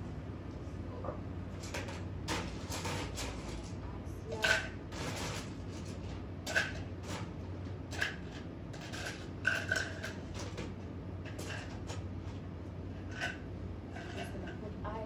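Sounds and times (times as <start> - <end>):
steady low hum: 0.0 - 15.0
utensils knocking and clinking: 1.6 - 12.1, 14.0 - 14.7.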